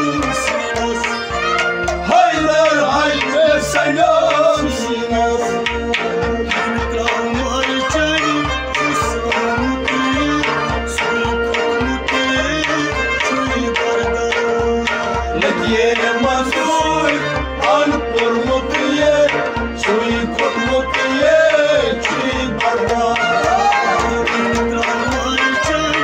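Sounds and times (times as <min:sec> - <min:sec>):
held melodic line: 0:00.0 - 0:26.0
tabla playing: 0:00.0 - 0:26.0.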